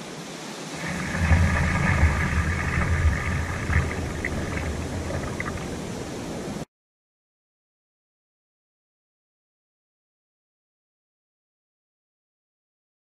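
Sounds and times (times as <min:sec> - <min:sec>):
ocean surf washing in: 0:00.0 - 0:06.7
wind buffeting microphone: 0:00.7 - 0:06.6.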